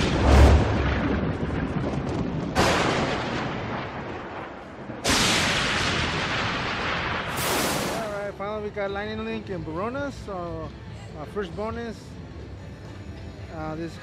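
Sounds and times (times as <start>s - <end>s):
thunder crashes: 0.0s - 8.2s.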